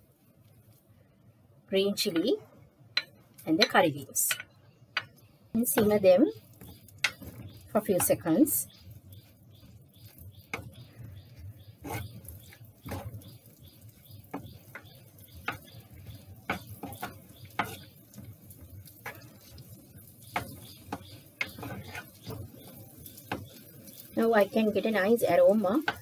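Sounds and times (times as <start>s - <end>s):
wooden spoon scraping clay pot: 5.6s - 26.0s.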